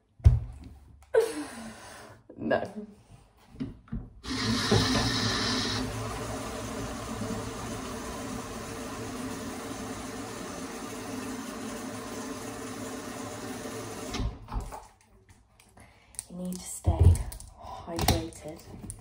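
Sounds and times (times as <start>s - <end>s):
kitchen appliance humming: 4.2s - 14.4s.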